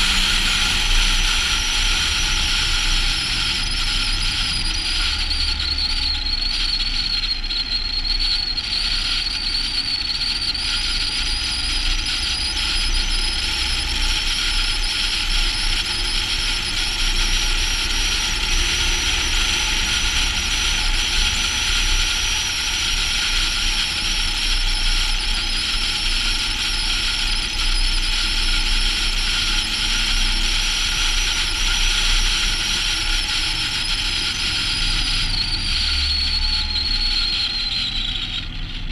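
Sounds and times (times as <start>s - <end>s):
low truck engine drone: 0.0s - 7.2s
high whine: 0.0s - 38.9s.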